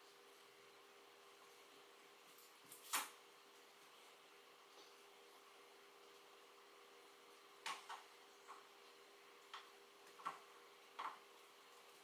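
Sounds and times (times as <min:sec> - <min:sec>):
faint steady hum: 0:00.0 - 0:12.0
small clicks and light knocks: 0:09.4 - 0:11.2.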